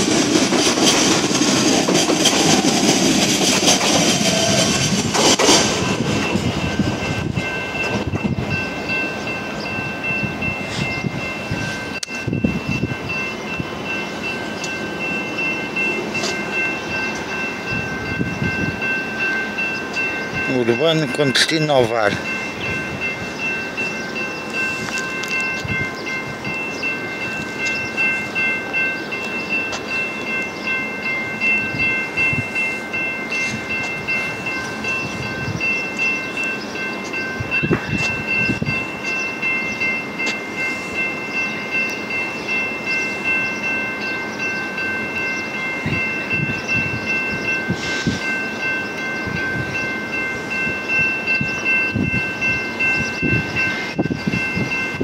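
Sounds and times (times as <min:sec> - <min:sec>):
gusty noise: 0:00.0 - 0:14.0, 0:37.2 - 0:39.6, 0:49.2 - 0:55.0
electric train approaching: 0:00.0 - 0:55.0
high-pitched ringing tones: 0:05.7 - 0:55.0.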